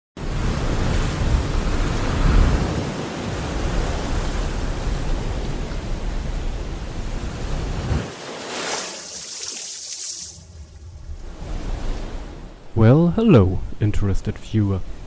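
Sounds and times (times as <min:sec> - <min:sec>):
bright hiss: 0:08.7 - 0:10.9.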